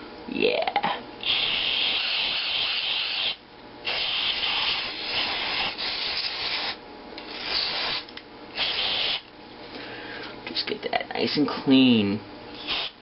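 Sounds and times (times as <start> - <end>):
aerosol spray hissing: 1.2 - 6.8, 8.6 - 9.2, 12.6 - 13.0.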